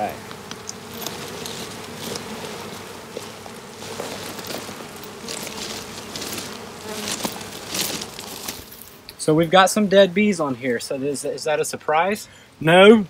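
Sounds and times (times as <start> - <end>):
honeybees buzzing: 0.0 - 13.0
short rustles: 0.8 - 9.0.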